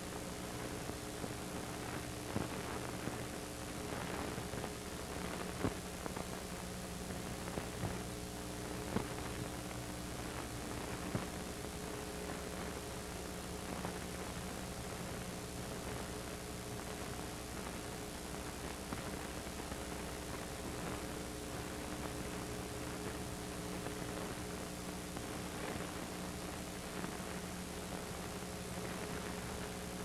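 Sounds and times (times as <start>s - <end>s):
steady hiss: 0.0s - 30.0s
clicks and crackles: 1.9s - 6.4s, 8.8s - 11.4s.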